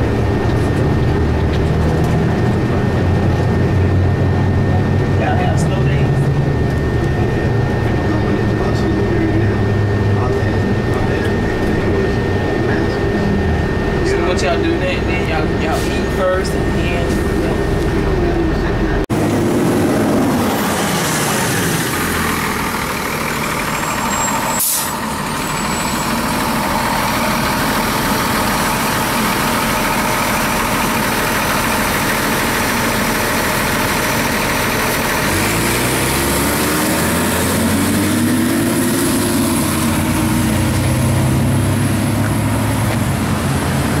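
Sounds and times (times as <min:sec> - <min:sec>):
diesel bus engine idling: 0:00.0 - 0:44.0
air brake hiss: 0:24.6 - 0:25.0.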